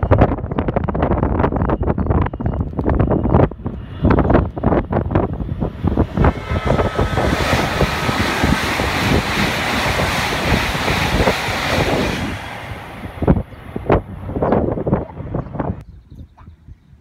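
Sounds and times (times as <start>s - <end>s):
wind buffeting microphone: 0.0s - 17.0s
high-speed train passing: 3.5s - 15.8s
faint high whine: 5.8s - 9.9s.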